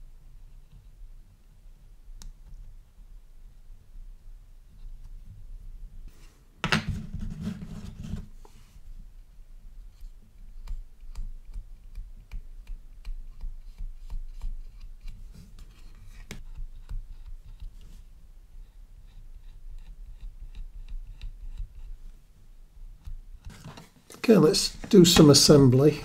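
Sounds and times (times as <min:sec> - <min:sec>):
rubbing handling noise: 0:06.1 - 0:08.9, 0:22.9 - 0:26.0.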